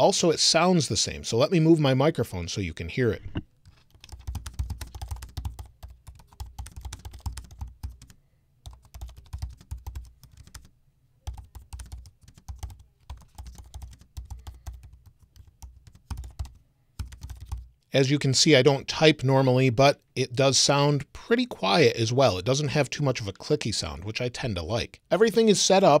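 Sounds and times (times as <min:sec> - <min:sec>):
fast laptop keyboard typing: 0:03.6 - 0:17.7.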